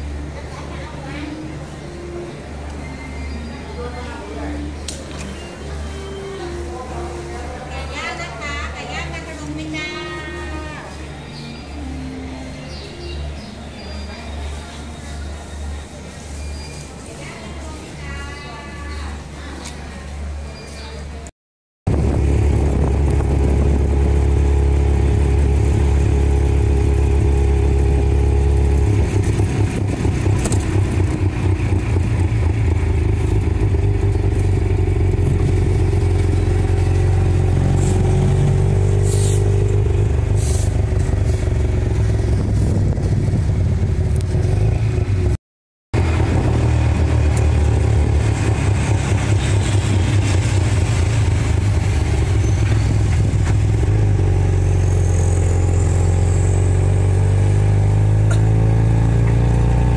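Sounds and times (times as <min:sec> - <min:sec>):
small engine pulling away: 0:21.9 - 0:45.3, 0:46.0 - 0:59.9.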